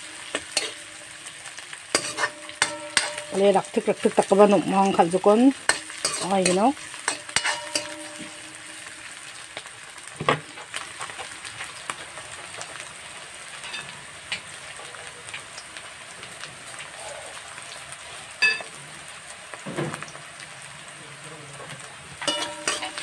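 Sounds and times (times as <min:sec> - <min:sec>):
vegetables sizzling in oil: 0:00.0 - 0:23.0
wok knocks: 0:02.0 - 0:03.5, 0:07.1 - 0:08.4, 0:22.2 - 0:23.0.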